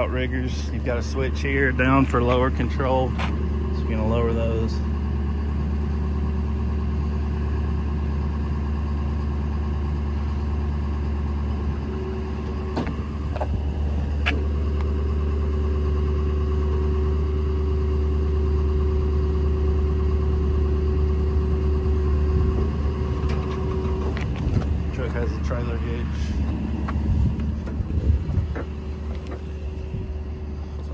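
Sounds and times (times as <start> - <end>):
diesel engine running: 0.0 - 30.9
hydraulic whine: 0.0 - 30.9
metal clunks: 12.7 - 13.6, 23.1 - 24.9, 26.3 - 29.7.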